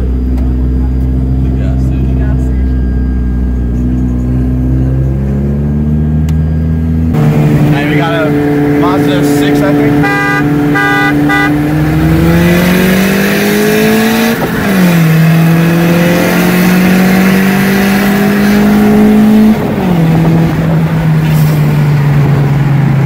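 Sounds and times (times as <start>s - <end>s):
car engine accelerating: 0.0s - 23.0s
car horn toot: 9.6s - 11.8s.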